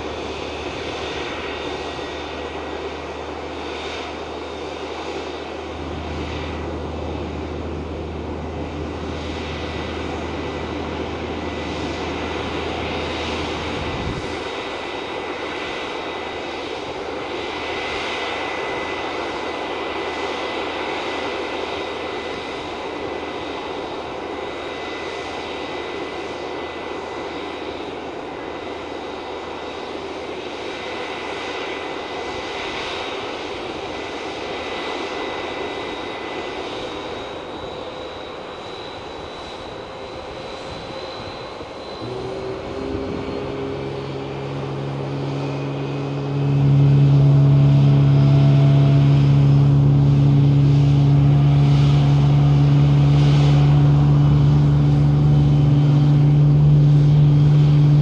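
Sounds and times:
jet engines idling: 0:00.0 - 0:58.0
low hum: 0:39.2 - 0:58.0.

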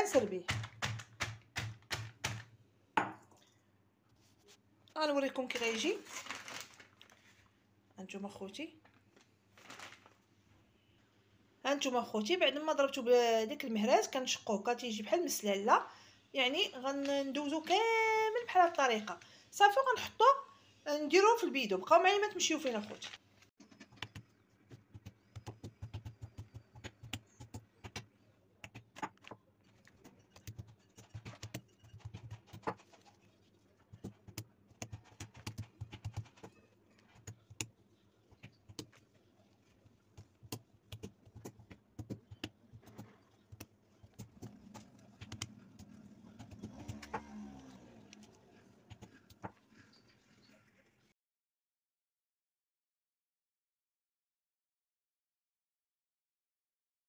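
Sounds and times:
plastic rustling: 0:05.5 - 0:07.5, 0:09.1 - 0:10.3.

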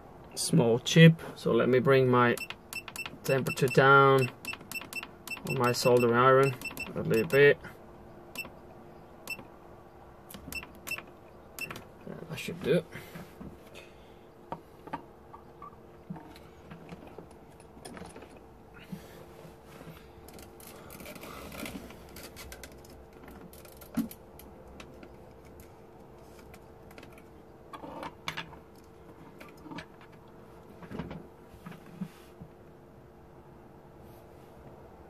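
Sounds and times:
steady hum: 0:00.0 - 0:23.9
tools clicking and tapping: 0:02.4 - 0:07.4.

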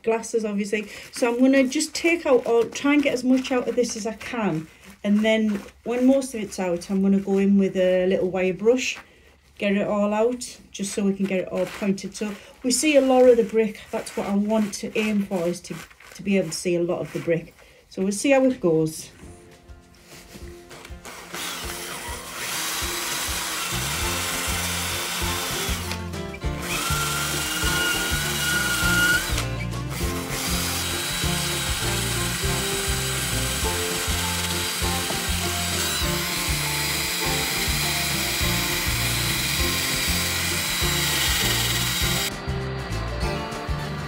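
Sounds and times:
background music: 0:18.5 - 0:44.0
electric drill grinding mortar: 0:21.0 - 0:42.3.

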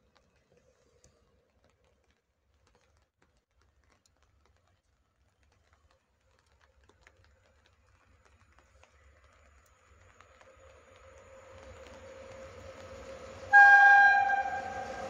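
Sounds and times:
raindrops ticking: 0:00.0 - 0:15.0
distant electric locomotive: 0:09.6 - 0:15.0.

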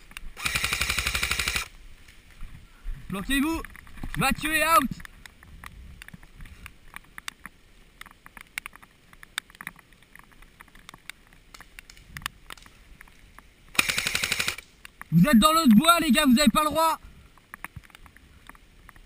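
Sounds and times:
automatic airsoft gunfire: 0:00.4 - 0:01.7, 0:13.8 - 0:14.6
faint clicks and snaps: 0:05.0 - 0:13.5, 0:14.6 - 0:15.1.

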